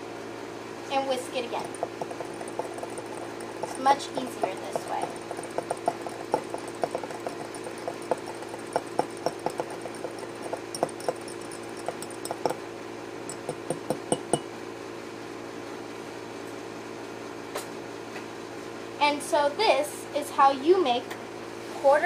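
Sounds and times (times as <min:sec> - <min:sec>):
steady low hum: 0:00.7 - 0:15.0
spoon clinking in ceramic cup: 0:01.6 - 0:12.6, 0:13.3 - 0:14.5.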